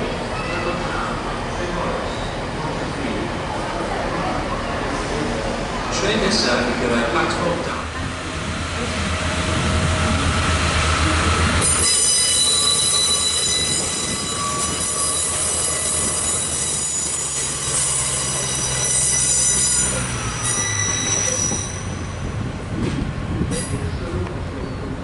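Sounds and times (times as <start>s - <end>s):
train wheels squealing: 11.6s - 22.4s.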